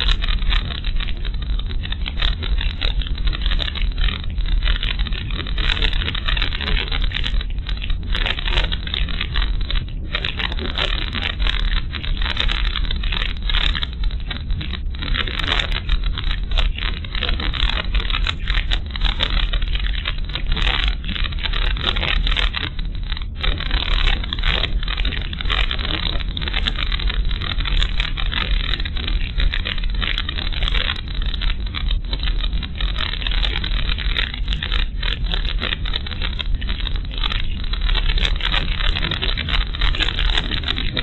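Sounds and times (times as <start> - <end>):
continuous hiss: 0.0 - 41.0
irregular crackling: 0.0 - 41.0.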